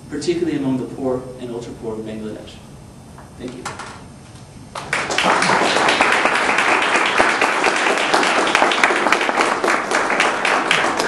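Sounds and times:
audience applause: 0:04.8 - 0:11.0.

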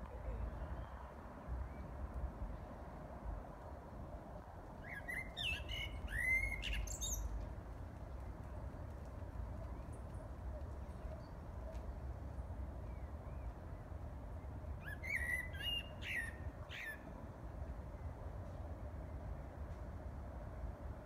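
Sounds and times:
blackbird singing: 0:04.9 - 0:07.3.

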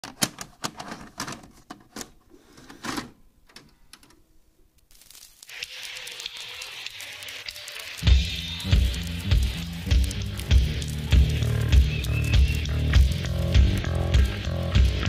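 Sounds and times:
faint steady hiss: 0:03.3 - 0:15.0
sharp clicks: 0:04.8 - 0:14.8.

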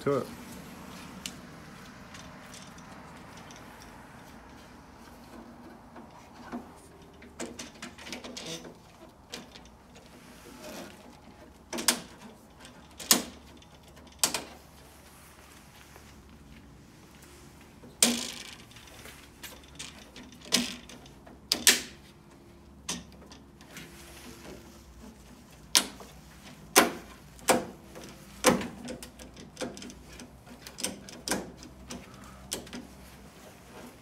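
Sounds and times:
handling sounds: 0:00.4 - 0:34.0.

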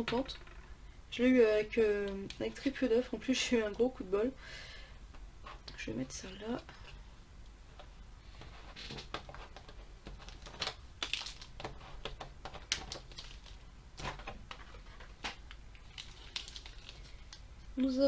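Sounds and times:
foil packs crinkling: 0:10.2 - 0:11.7, 0:12.6 - 0:13.6, 0:14.5 - 0:17.4.

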